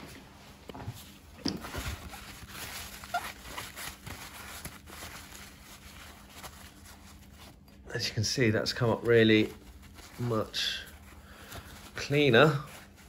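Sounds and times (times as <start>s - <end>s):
paper towel rustling and crumpling: 0.0s - 13.0s.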